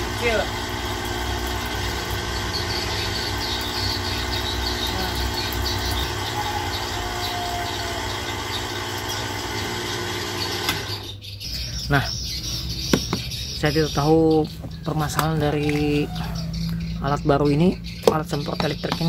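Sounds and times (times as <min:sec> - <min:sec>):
pump motor humming: 0:00.0 - 0:11.2.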